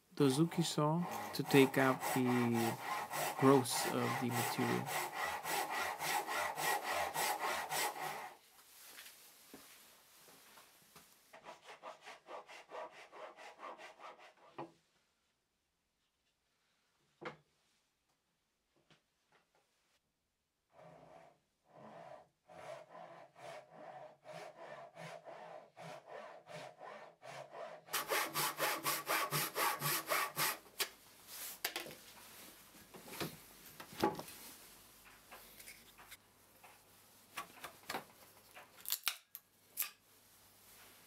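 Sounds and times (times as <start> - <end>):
hand saw cutting wood: 0.4 - 8.4, 11.4 - 14.5, 20.7 - 30.7.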